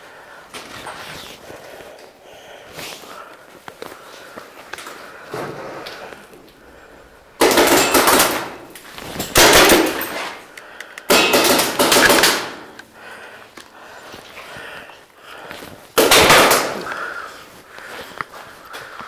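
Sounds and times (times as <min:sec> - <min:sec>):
paintball markers firing: 0:09.4 - 0:12.8.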